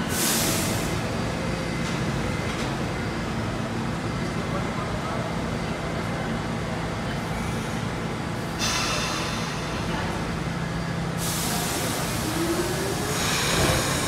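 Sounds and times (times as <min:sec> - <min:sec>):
air brakes hissing: 0:00.0 - 0:01.1, 0:08.5 - 0:09.8, 0:11.2 - 0:14.0
subway train rumbling: 0:00.0 - 0:14.0
hiss of air: 0:00.1 - 0:01.0, 0:11.2 - 0:14.0.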